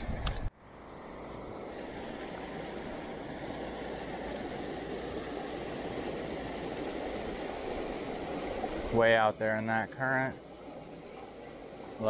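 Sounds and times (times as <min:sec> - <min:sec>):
water rushing through spillway: 0:01.5 - 0:12.0.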